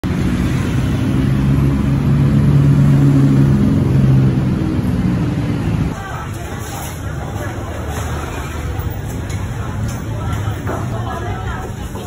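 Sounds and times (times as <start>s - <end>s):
vehicle engine humming: 0.0s - 6.2s.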